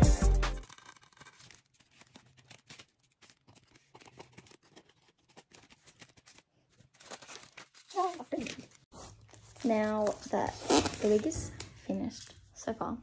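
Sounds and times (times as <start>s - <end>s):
paper strips rustling: 0.6s - 11.6s.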